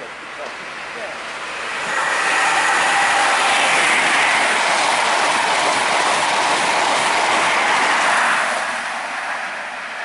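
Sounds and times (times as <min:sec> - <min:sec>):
passenger train passing at speed: 0:00.0 - 0:10.0.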